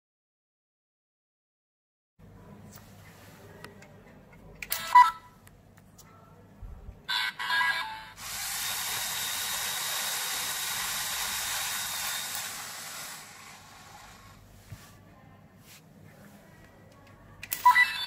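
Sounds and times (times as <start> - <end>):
motor whirring as reels spin: 8.2 - 14.4.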